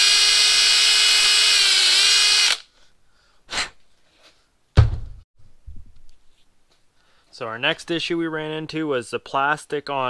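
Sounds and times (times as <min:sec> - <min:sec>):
cordless drill running: 0:00.0 - 0:02.7.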